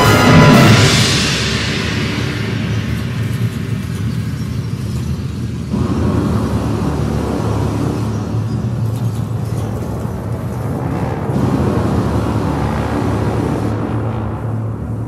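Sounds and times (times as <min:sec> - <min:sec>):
wind orchestra playing: 0:00.0 - 0:02.4, 0:10.2 - 0:15.0.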